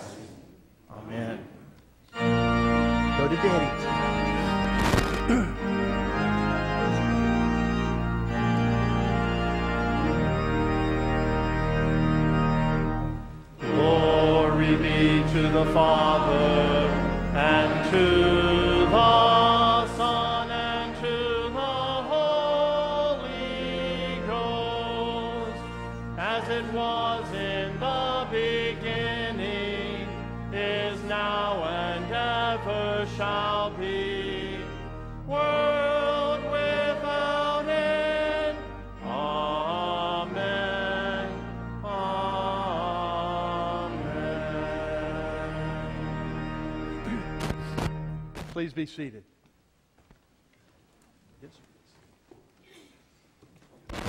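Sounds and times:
church organ chords: 2.1 - 49.0
choir singing: 13.6 - 47.4.

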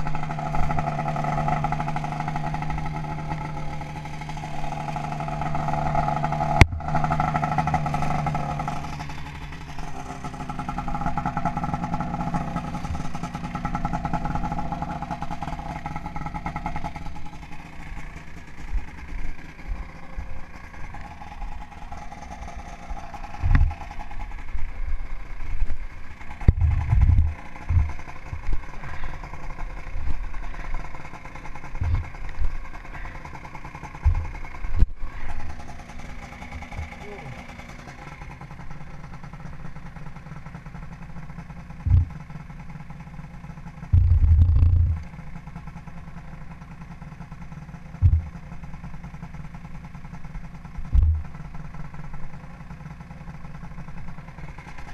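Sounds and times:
snowmobile engine running: 0.0 - 54.9
dull low thumps: 23.4 - 23.8, 26.4 - 29.2, 31.7 - 32.6, 34.0 - 35.0, 41.8 - 42.4, 43.9 - 45.1, 48.0 - 48.5, 50.8 - 51.4.

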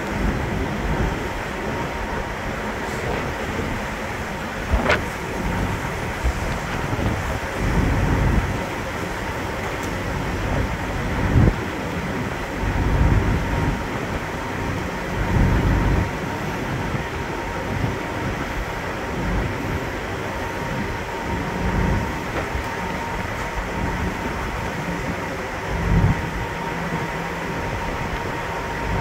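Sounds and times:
faint steady whine: 0.0 - 29.0
ferry engines rumbling: 0.0 - 29.0
wind buffeting microphone: 0.0 - 29.0.

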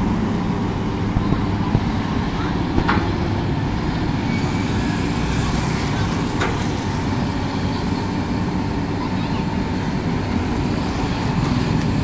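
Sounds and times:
excavator diesel engine rumbling: 0.0 - 12.0
motorcycles passing: 3.5 - 12.0.

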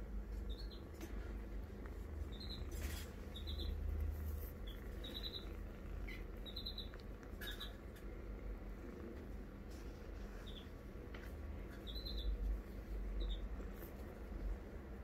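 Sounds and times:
low steady rumble: 0.0 - 15.0
kitten high-pitched chirps: 2.2 - 7.8, 11.7 - 12.4.

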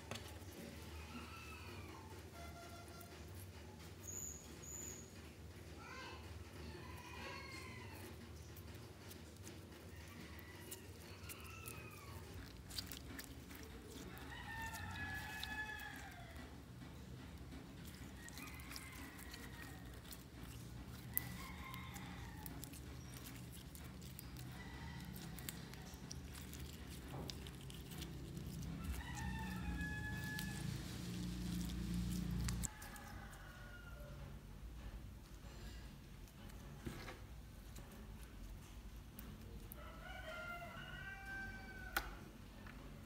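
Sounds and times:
slime squeaky drawn-out tones: 0.8 - 5.1, 10.0 - 33.1.

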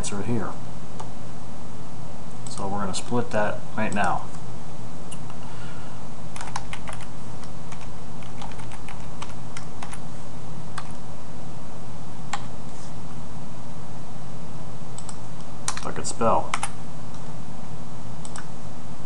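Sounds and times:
steady low hum: 0.0 - 19.0
keyboard typing: 6.4 - 10.0, 10.7 - 11.0, 15.0 - 15.9.

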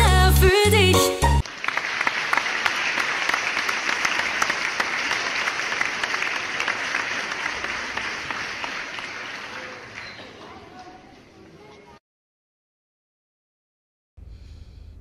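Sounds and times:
crowd applauding: 1.4 - 11.1.

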